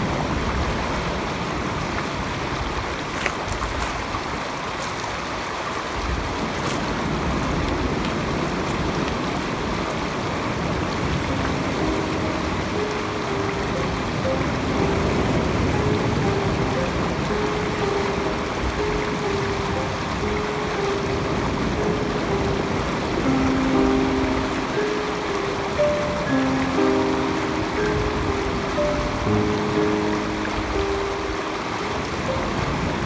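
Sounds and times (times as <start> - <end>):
surf on a pebble beach: 0.0 - 33.0
faint music tones: 10.6 - 33.0.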